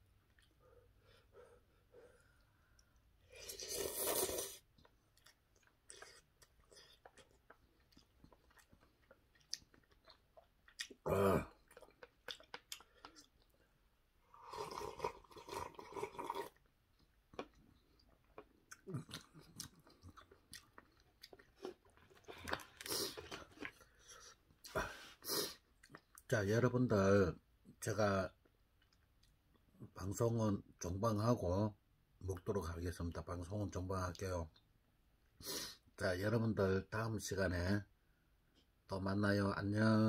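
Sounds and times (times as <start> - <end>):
person slurping noodles: 3.2 - 4.7, 14.3 - 16.6
wet chewing clicks: 4.8 - 11.0, 11.6 - 13.6.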